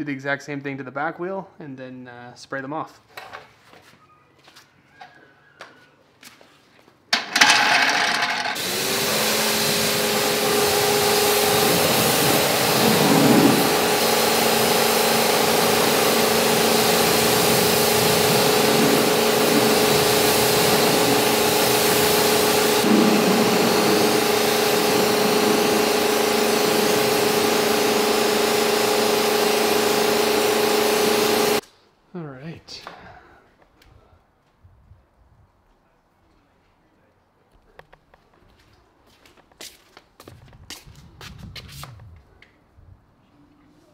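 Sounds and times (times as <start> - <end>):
pressure washer motor hum: 7.2 - 31.6
water spray hissing: 9.2 - 31.6.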